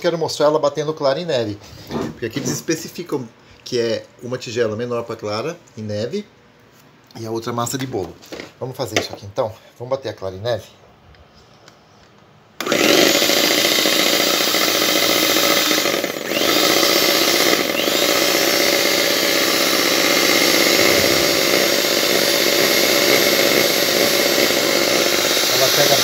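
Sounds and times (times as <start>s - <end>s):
stand mixer motor whisking: 12.6s - 26.0s.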